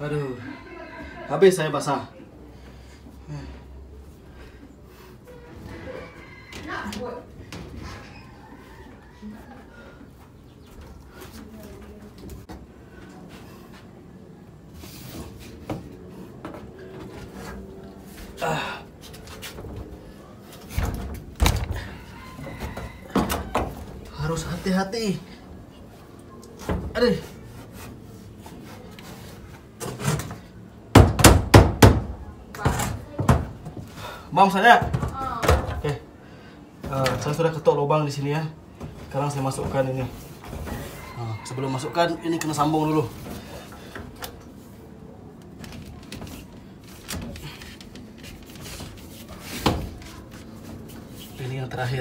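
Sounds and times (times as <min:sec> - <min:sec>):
loud knocks on wood: 0:30.9 - 0:32.1.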